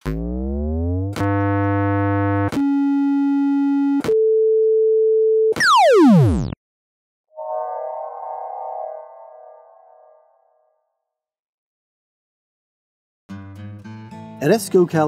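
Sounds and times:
fast downward synth sweep: 7.4s - 10.5s
shimmering chime-like tones: 7.4s - 10.6s.

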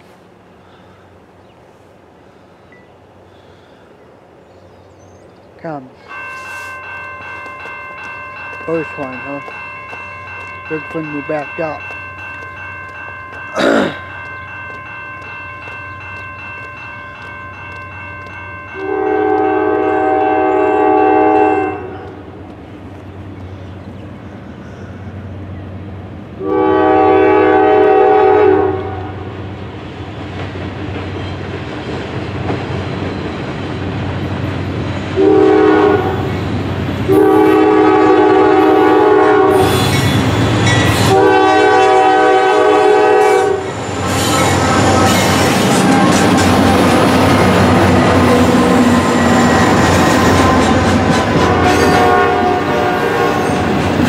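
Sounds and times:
train rumble: 0.0s - 54.0s
locomotive air horn blasts: 18.7s - 22.2s, 26.4s - 29.3s, 35.2s - 36.3s, 37.1s - 44.9s, 51.3s - 53.7s.

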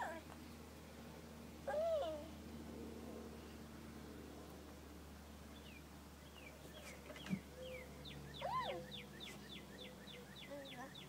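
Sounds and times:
songbird singing whistled notes: 5.6s - 11.0s.

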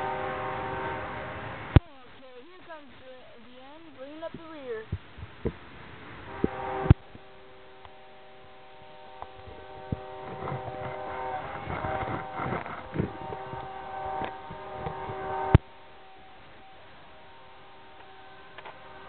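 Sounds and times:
locomotive air horn: 0.0s - 1.8s, 6.2s - 19.0s
rushing rumble: 0.0s - 19.0s.

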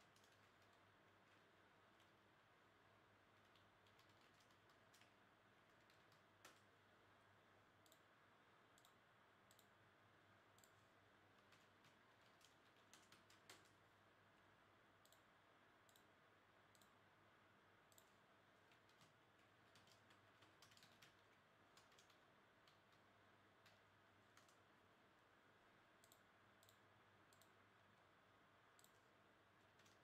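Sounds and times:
keyboard and mouse clicking: 0.0s - 1.4s, 3.4s - 6.7s, 7.8s - 8.1s, 8.8s - 9.7s, 10.6s - 13.8s, 15.0s - 15.3s, 15.9s - 16.1s, 16.7s - 17.0s, 17.9s - 23.0s, 23.6s - 24.6s, 26.0s - 27.6s, 28.8s - 29.1s, 29.7s - 30.0s.

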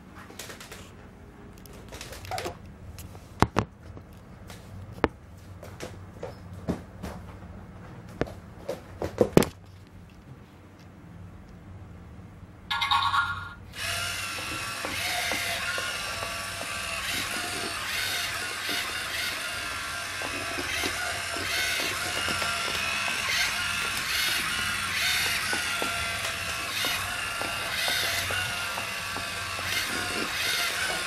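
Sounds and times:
robot motors whirring: 13.8s - 31.0s.

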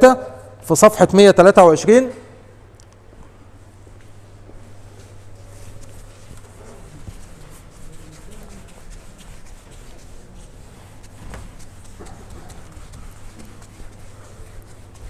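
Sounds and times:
steady low hum: 0.0s - 15.0s
eraser wiping whiteboard: 5.0s - 15.0s.

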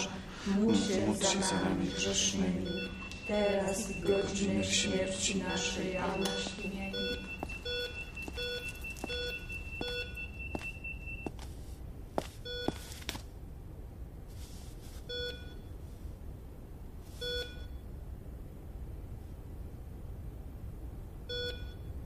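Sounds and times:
thin steady high tone: 0.0s - 11.3s
heart monitor beeping: 0.0s - 13.2s, 15.0s - 15.7s, 17.2s - 17.8s, 21.3s - 22.0s.

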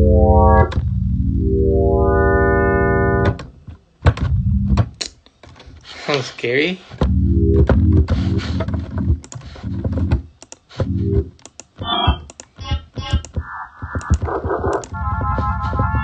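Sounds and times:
short synthesizer notes: 0.0s - 3.4s
computer keys clicking: 9.2s - 9.5s, 10.4s - 10.7s, 11.4s - 15.0s.

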